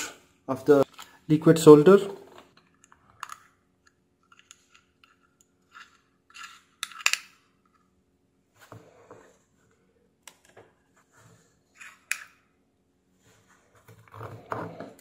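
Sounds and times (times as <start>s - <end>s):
metal tool scraping a jar: 5.6s - 7.1s.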